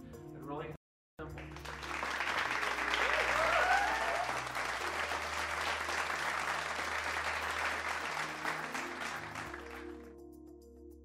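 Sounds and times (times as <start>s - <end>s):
music playing: 0.0s - 11.0s
audience applauding: 1.3s - 10.0s.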